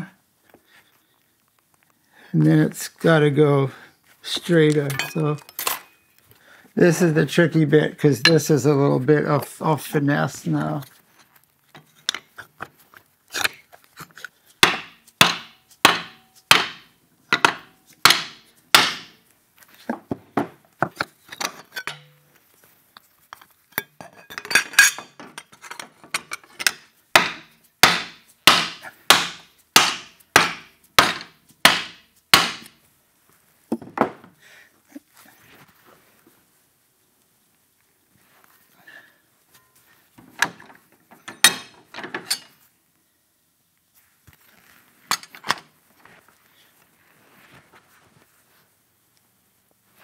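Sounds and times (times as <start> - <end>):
hammer striking metal: 14.6 - 19.1, 27.2 - 32.7.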